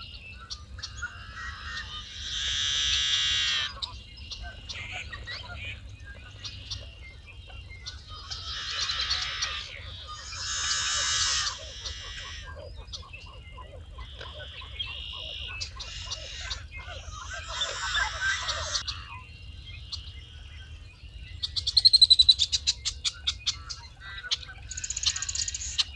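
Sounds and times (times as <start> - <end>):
birds calling and singing: 0.0 - 25.9
high bird chattering: 8.2 - 12.5, 14.0 - 18.8.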